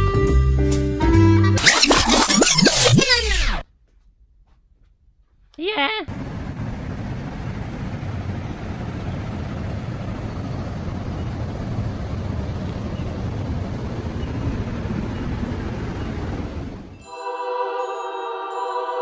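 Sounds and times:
low outdoor rumble: 6.1s - 17.0s.

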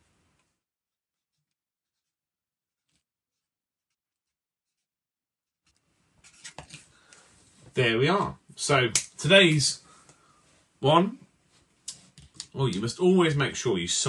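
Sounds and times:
marker scratching on paper: 1.2s - 2.1s, 4.2s - 4.8s.

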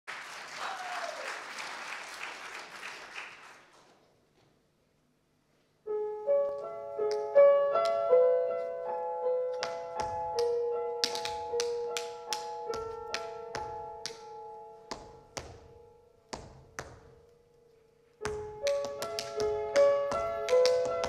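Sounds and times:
audience applause: 0.1s - 3.9s
solo piano music: 5.8s - 21.0s.

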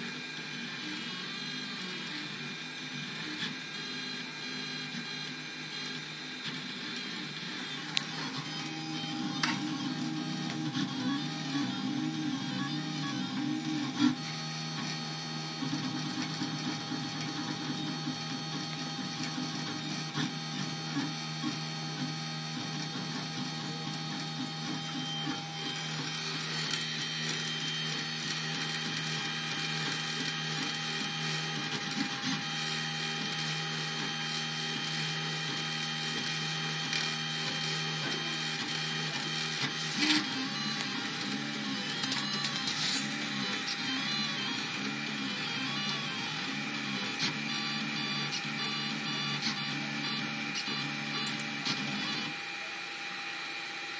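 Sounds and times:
stepper motors whining: 0.4s - 53.9s.

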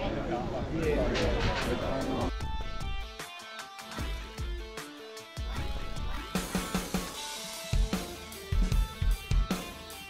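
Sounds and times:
rock music: 2.3s - 10.0s.

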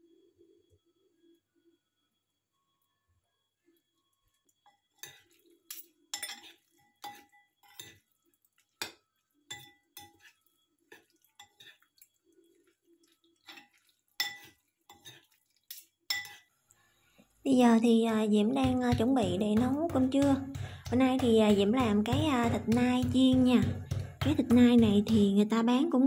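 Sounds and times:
metal utensils clinking on ceramic bowl: 4.6s - 12.2s, 13.2s - 16.5s, 19.5s - 25.2s.

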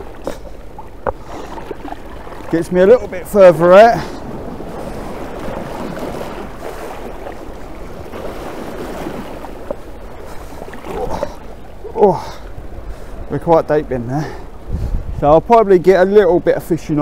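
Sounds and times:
water sloshing around wading legs: 0.0s - 13.2s.

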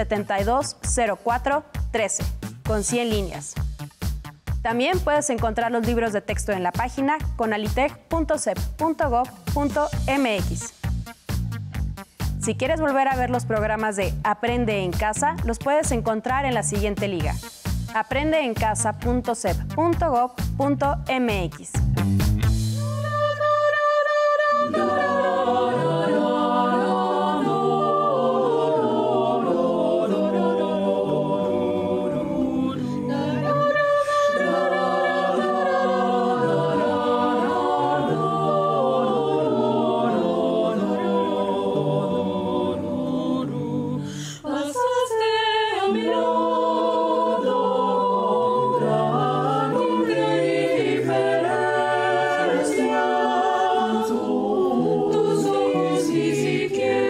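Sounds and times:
mixed choir singing a cappella: 22.8s - 57.0s.

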